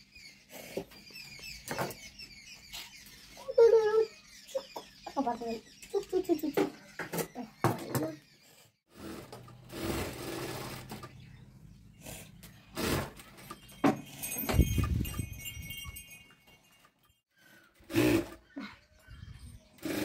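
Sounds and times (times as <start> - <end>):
sewing machine stitching: 9.0 - 11.1.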